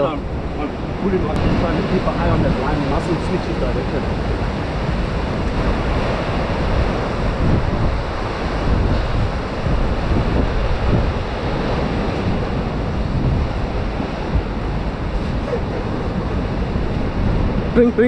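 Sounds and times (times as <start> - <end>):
ocean surf breaking: 0.0 - 18.0
wind rumbling on microphone: 0.0 - 18.0.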